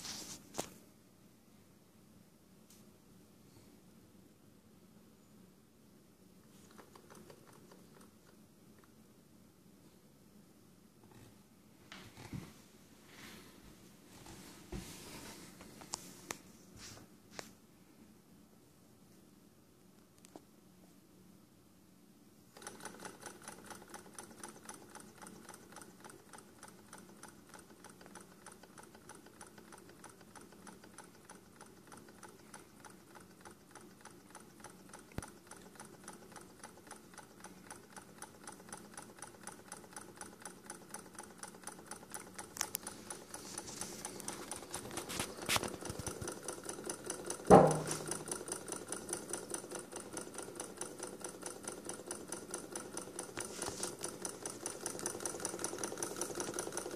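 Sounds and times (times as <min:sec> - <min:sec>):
small engine ticking rhythmically: 0:22.6 - 0:56.9
loud knock: 0:47.5 - 0:48.1.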